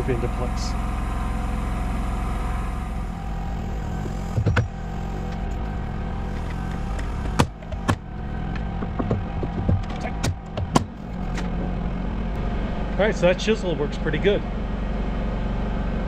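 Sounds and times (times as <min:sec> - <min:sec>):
steady machine hum: 0:00.0 - 0:16.0
knocks on wood: 0:06.6 - 0:11.0.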